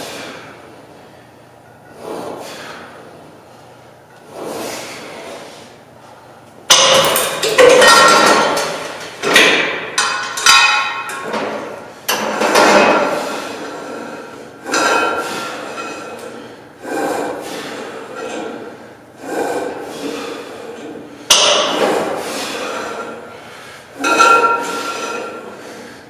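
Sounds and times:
weight stack clanking: 6.7s - 25.7s.

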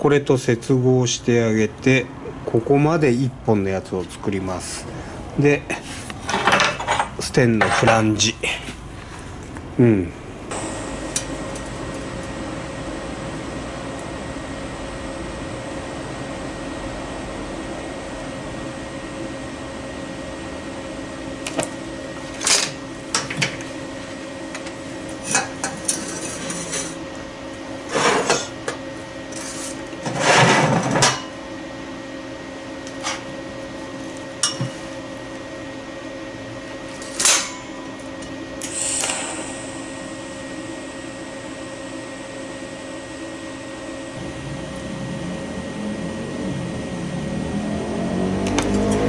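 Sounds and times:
steady machine hum: 0.0s - 49.0s
rough noisy burst: 44.2s - 47.8s.

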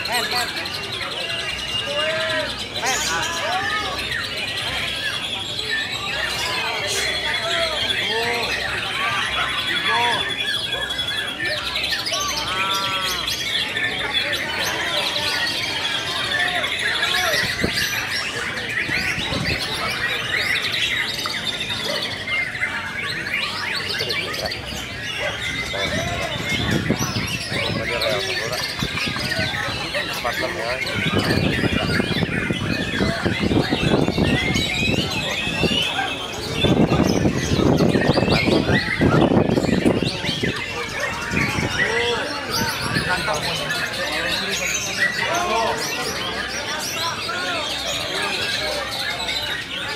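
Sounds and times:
songbird whistling and chirping: 3.8s - 49.9s.

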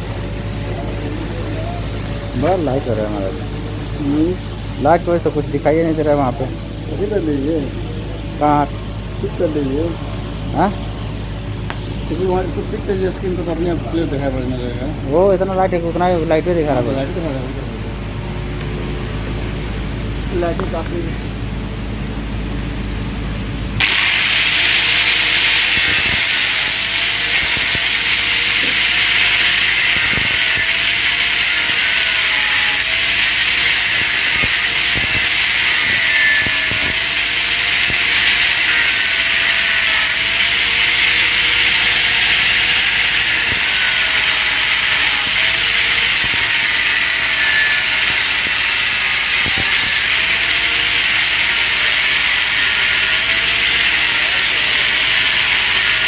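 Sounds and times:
angle grinder grinding metal: 23.8s - 56.0s.

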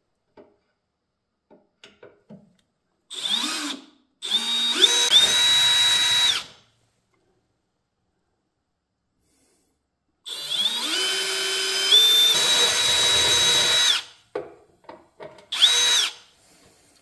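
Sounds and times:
cordless drill whining: 3.1s - 6.6s, 10.3s - 14.2s, 15.5s - 16.3s.

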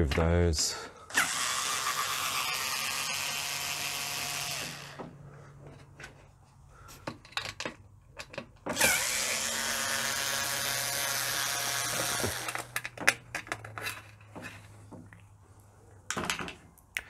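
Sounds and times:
electric screwdriver running: 1.1s - 5.0s, 8.8s - 12.8s.

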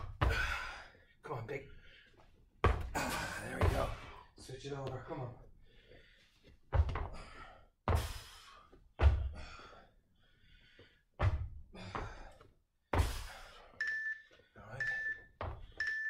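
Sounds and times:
feet thudding on gym floor: 0.0s - 0.7s, 2.6s - 4.2s, 6.6s - 9.6s, 11.2s - 12.3s, 12.9s - 13.5s.

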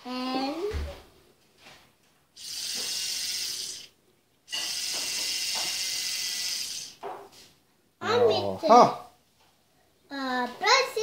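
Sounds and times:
toy drill high-pitched buzzing: 2.4s - 3.9s, 4.5s - 7.0s.

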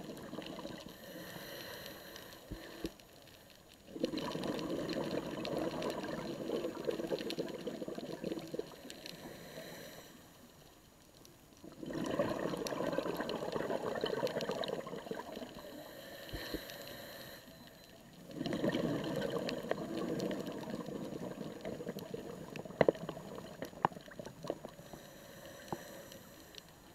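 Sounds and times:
regulator bubbling bursts: 0.0s - 0.9s, 3.9s - 8.8s, 11.7s - 15.7s, 18.2s - 24.8s.

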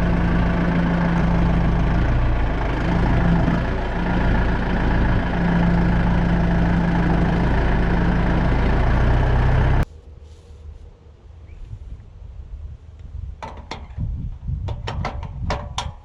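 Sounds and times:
sawmill engine droning: 0.0s - 9.8s.

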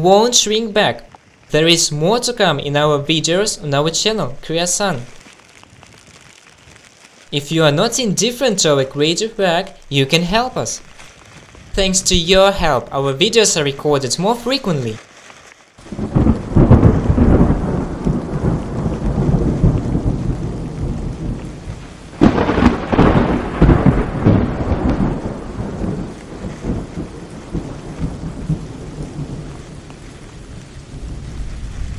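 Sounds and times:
thunder rolling and cracking: 15.8s - 31.9s.

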